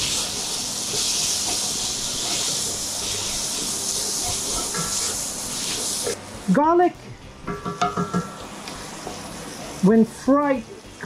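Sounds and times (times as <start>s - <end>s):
bacon sizzling in a pot: 0.0s - 11.0s.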